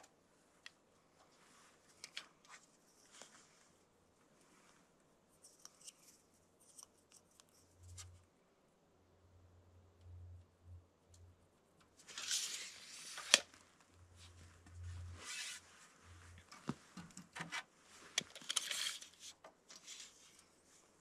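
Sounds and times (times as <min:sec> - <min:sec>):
rustling handling noise: 0:01.1 - 0:08.2, 0:12.0 - 0:21.0.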